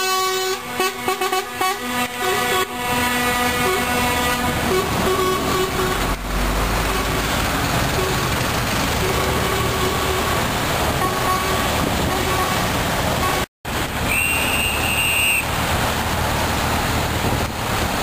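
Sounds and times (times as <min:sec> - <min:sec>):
lorry horns sounding: 0:00.0 - 0:13.5
lorry engines running: 0:01.9 - 0:18.0.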